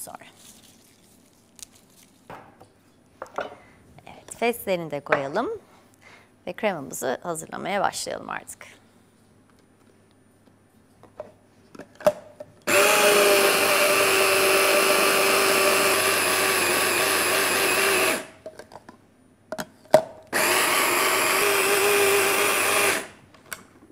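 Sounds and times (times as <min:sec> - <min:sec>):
hand blender motor: 0:12.7 - 0:18.4, 0:20.3 - 0:23.2.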